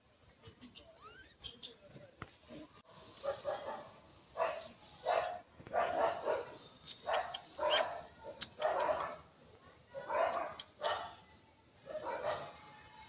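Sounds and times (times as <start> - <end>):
animal barks: 3.2 - 9.2, 10.0 - 11.2.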